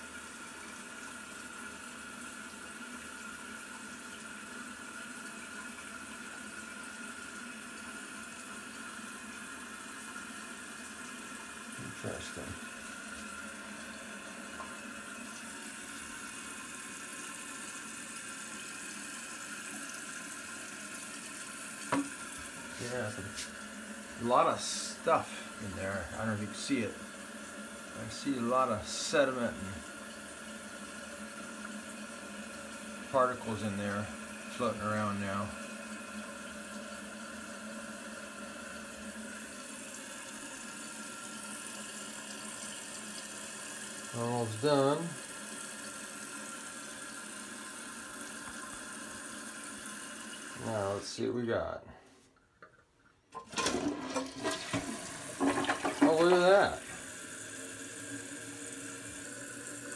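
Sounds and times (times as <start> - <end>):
toilet refilling hiss: 0.0 - 51.3, 53.3 - 59.9.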